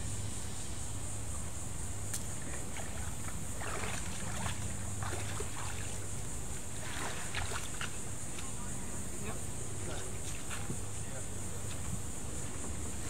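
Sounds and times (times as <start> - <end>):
steady high hiss: 0.0 - 13.0
shallow water splashing: 2.3 - 8.6
canoe dragged through water: 2.4 - 8.7.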